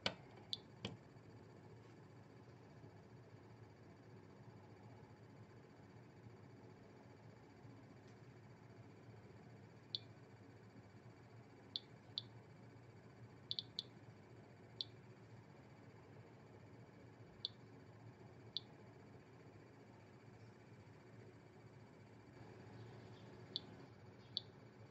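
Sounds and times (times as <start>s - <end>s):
geiger counter clicks: 13.5s - 13.9s.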